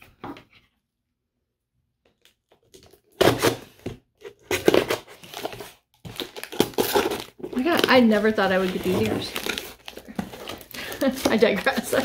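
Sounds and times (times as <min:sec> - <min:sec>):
bubble wrap crinkling: 0:04.3 - 0:12.0.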